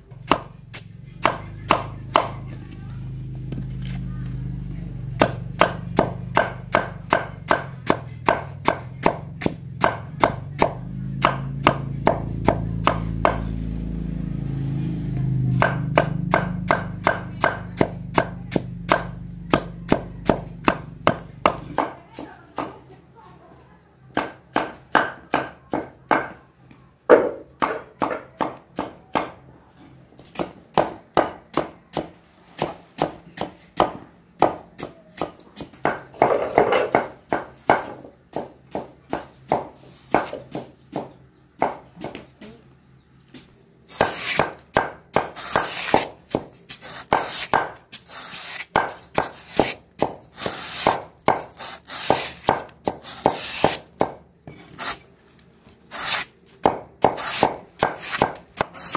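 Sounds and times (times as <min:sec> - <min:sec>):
knife chopping: 0:00.2 - 0:02.4, 0:05.2 - 0:13.5, 0:43.9 - 0:55.0, 0:55.9 - 0:58.9.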